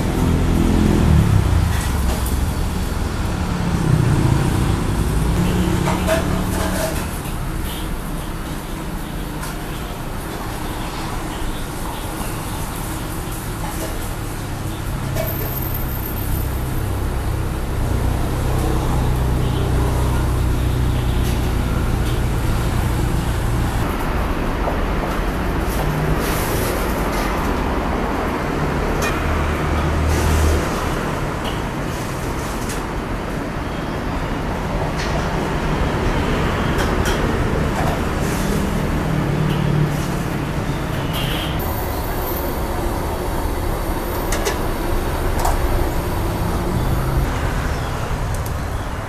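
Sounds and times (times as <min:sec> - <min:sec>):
gas wok burner roaring: 0:00.0 - 0:33.0, 0:41.6 - 0:49.0
street traffic: 0:00.0 - 0:49.0
gas burner rumble: 0:41.6 - 0:49.0.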